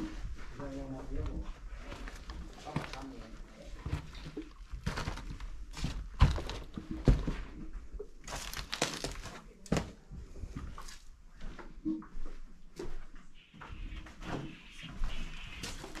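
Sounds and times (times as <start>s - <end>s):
footsteps crunching on debris: 8.2s - 10.0s.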